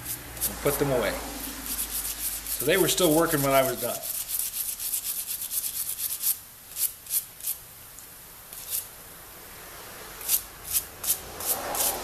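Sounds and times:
stiff brush scrubbing metal: 0.0s - 7.6s, 10.2s - 12.0s.

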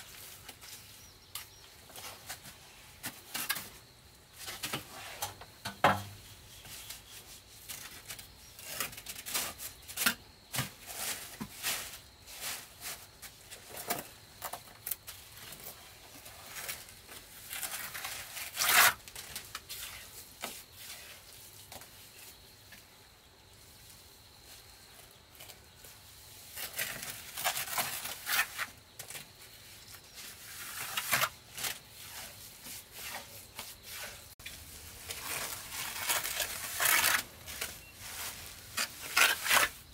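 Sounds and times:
trowel scraping mortar: 17.7s - 19.0s, 30.3s - 39.9s
plastic tarp crinkling: 34.5s - 39.8s.

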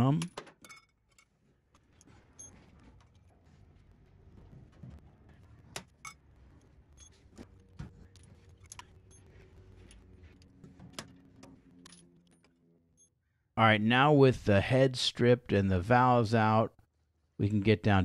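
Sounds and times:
faint low hum: 1.4s - 13.4s.

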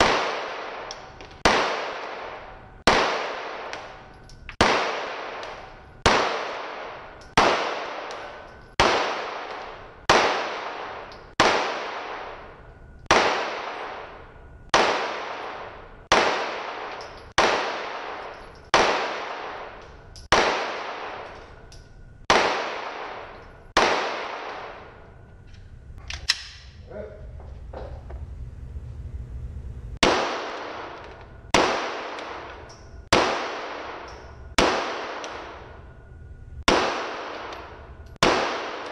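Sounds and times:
pistol shots echoing: 0.0s - 25.2s, 30.0s - 36.0s, 36.6s - 38.9s
low rumble: 16.7s - 38.2s.

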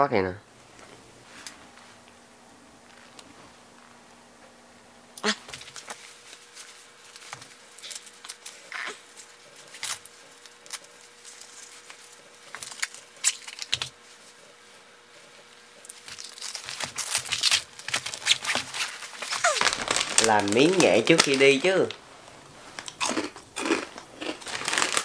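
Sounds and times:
plastic bag crinkling: 15.9s - 25.0s.

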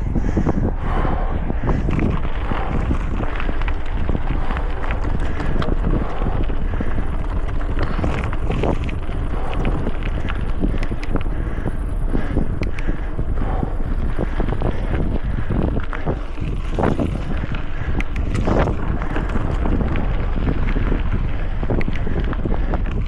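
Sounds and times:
bike rattling and clicking: 0.0s - 23.0s
bike tyres rumbling: 0.0s - 23.0s
wind buffeting microphone: 0.0s - 23.0s.

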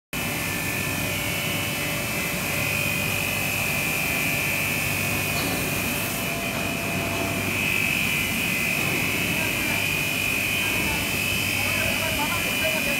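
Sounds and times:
machine drone with high whine: 0.2s - 12.9s.

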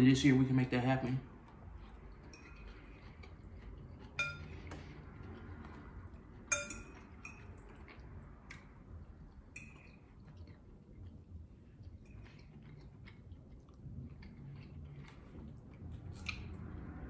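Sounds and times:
fork clinking against bowl: 2.2s - 3.1s, 4.0s - 4.9s, 6.5s - 8.0s, 9.5s - 10.2s.

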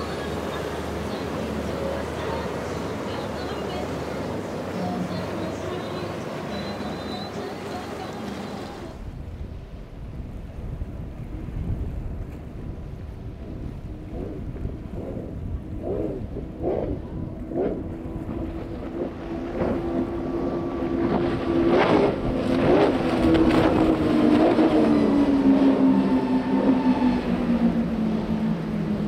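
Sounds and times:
hull slapping water: 0.0s - 29.0s
outboard engines droning: 0.0s - 29.0s
wind on microphone: 8.7s - 29.0s.

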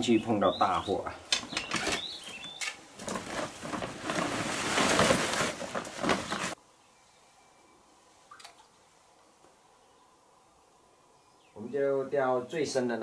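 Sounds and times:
faint outdoor background: 0.0s - 13.0s
plastic bag rustling and crinkling: 1.7s - 6.6s.

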